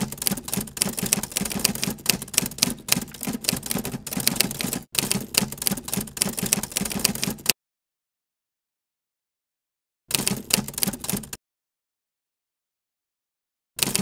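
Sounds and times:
typewriter keys clacking: 0.0s - 7.6s, 10.1s - 11.4s, 13.8s - 14.0s.

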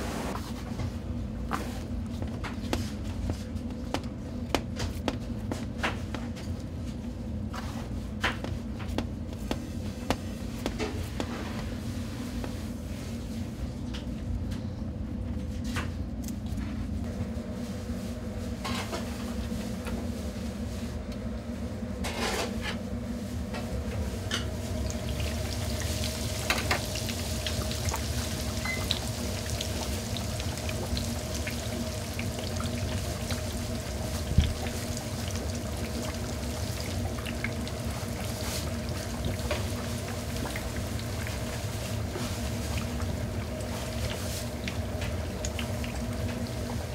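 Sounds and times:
low hum of kitchen equipment: 0.0s - 46.9s
soft rustles and taps: 1.5s - 6.7s, 7.6s - 11.5s
oil sizzling and bubbling: 1.6s - 14.0s, 22.0s - 46.9s.

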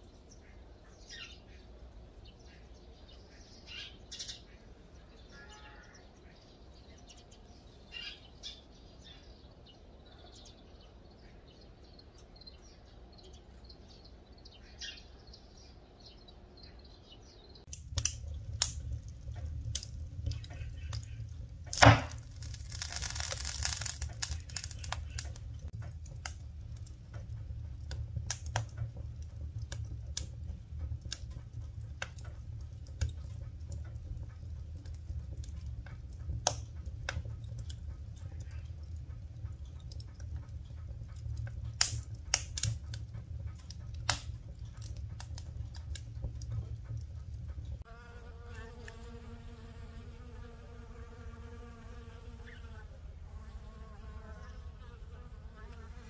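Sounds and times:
low fire rumble: 0.0s - 48.4s
wood fire crackling and popping: 17.6s - 47.9s.

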